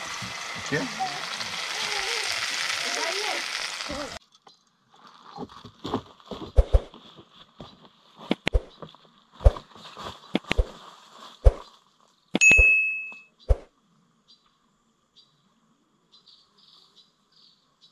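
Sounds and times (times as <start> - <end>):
frying in hot oil sizzling: 0.0 - 4.2
crackles: 0.0 - 12.3
footsteps through dry leaves: 5.0 - 8.3, 9.3 - 12.2.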